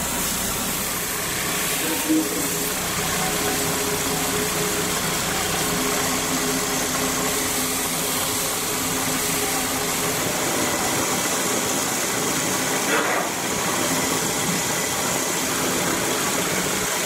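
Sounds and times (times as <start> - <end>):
lathe humming: 0.0 - 12.3
cloth hissing on spinning metal: 0.0 - 17.0.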